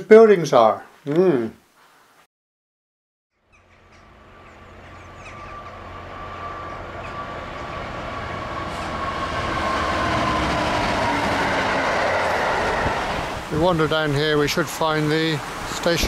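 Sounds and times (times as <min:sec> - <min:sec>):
diesel locomotive engine: 0:03.5 - 0:16.0
high whine: 0:03.9 - 0:13.8
train wheels on rails: 0:03.9 - 0:13.8.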